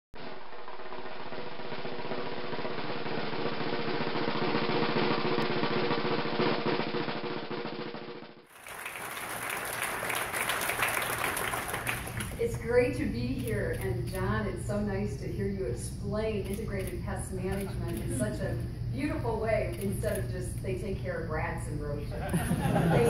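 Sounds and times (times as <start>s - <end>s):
snare drum roll: 0.2s - 12.4s.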